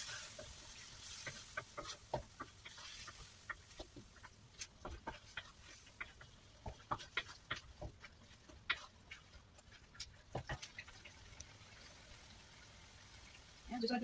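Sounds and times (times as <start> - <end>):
wooden spatula scraping wok: 0.0 - 11.1.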